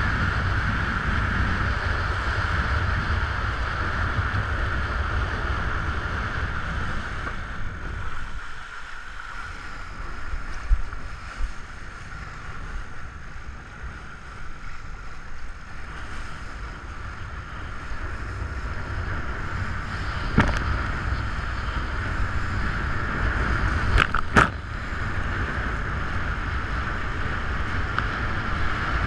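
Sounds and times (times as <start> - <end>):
water rushing under board: 0.0 - 29.0
wind buffeting microphone: 0.0 - 29.0.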